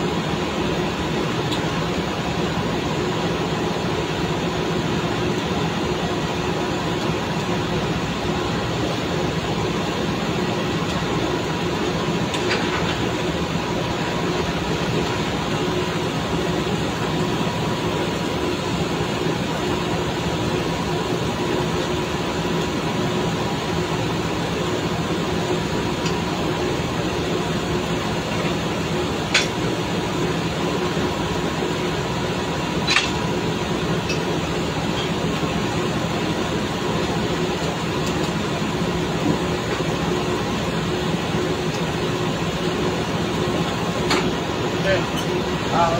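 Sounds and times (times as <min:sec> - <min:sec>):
drilling rig machinery drone: 0:00.0 - 0:45.9
sharp metal clanks: 0:32.8 - 0:33.2.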